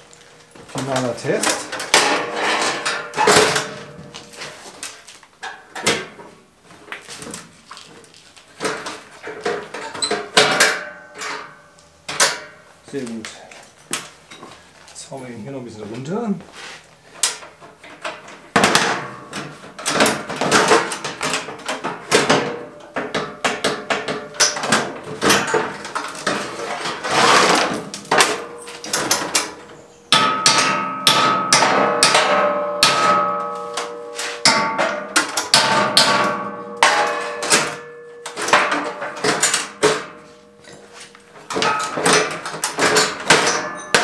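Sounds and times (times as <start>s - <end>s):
hammer striking sheet metal: 27.0s - 44.0s.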